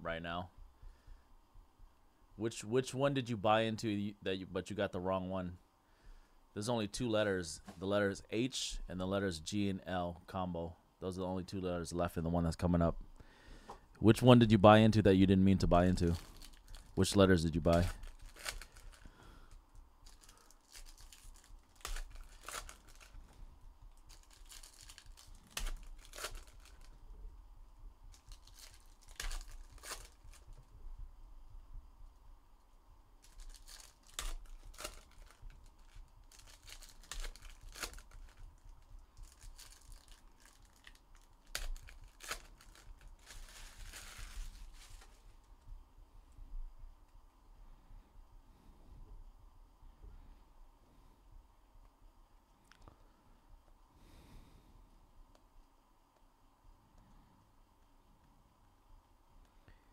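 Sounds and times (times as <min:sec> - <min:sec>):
foil wrappers crinkling: 0:15.6 - 0:27.0, 0:28.1 - 0:30.7, 0:33.2 - 0:45.5.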